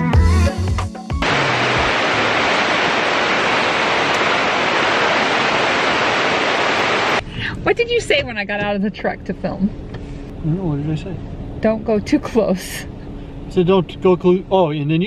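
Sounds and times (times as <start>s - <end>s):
whitewater rapids rushing: 1.2s - 7.2s.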